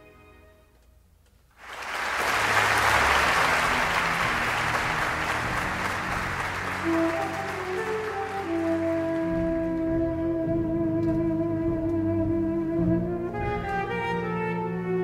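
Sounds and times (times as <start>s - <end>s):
audience applauding: 1.6s - 9.8s
sustained instrument notes: 2.4s - 15.0s.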